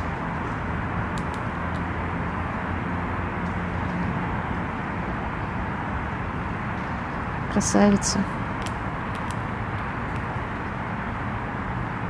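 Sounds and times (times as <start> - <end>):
distant road traffic rumble: 0.0 - 12.0
faint clicks: 1.1 - 1.8.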